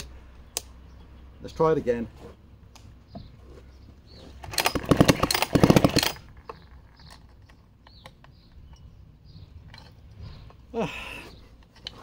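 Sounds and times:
chainsaw starter rope pulled: 0:04.3 - 0:07.5
engine turning over without firing: 0:04.4 - 0:07.3.

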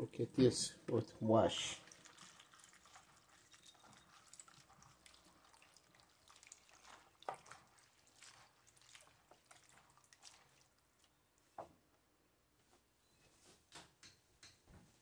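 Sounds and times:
water splashing and dripping: 0:00.9 - 0:11.1
hands rubbing leaves in water: 0:01.8 - 0:11.1.

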